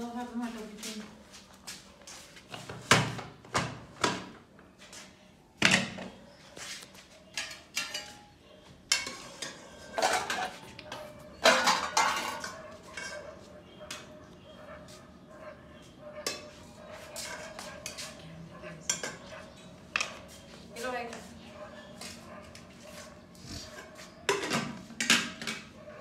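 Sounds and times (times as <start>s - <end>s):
metal spoon clanking on pot: 7.3s - 8.3s, 8.9s - 10.6s, 11.4s - 13.2s, 18.8s - 19.3s.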